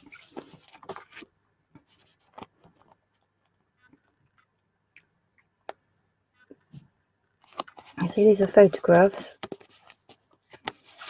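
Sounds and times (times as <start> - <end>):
card sheets rustling: 0.0 - 2.8, 7.4 - 11.0.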